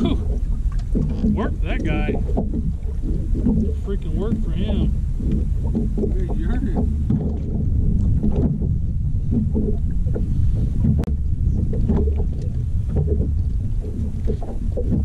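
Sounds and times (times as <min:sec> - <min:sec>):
small waves lapping against hull: 0:00.0 - 0:15.0
wind rumbling on microphone: 0:00.0 - 0:15.0.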